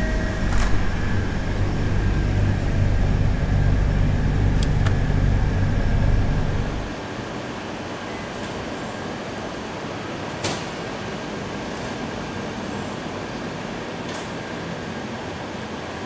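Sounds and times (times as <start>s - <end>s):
drinks cooler rumble and hum: 0.0s - 6.9s.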